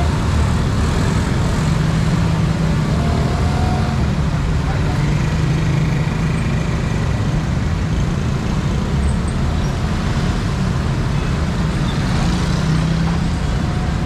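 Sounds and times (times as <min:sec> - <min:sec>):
dense road traffic passing: 0:00.0 - 0:14.0.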